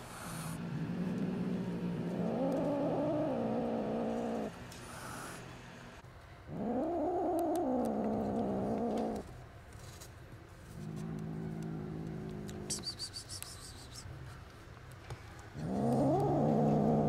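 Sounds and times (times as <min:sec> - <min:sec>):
kitten growling: 0:00.0 - 0:05.4, 0:06.5 - 0:09.3, 0:10.7 - 0:12.9, 0:15.6 - 0:17.0
kitten hissing: 0:12.5 - 0:14.1.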